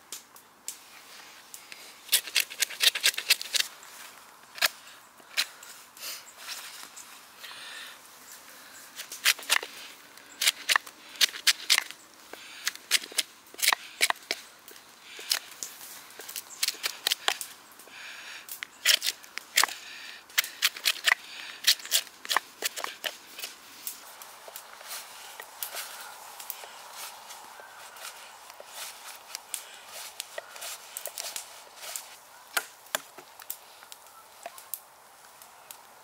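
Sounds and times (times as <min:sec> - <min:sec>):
knife carving wood: 0:02.1 - 0:03.7, 0:09.0 - 0:14.4, 0:15.1 - 0:15.6, 0:16.2 - 0:17.5, 0:18.7 - 0:23.6.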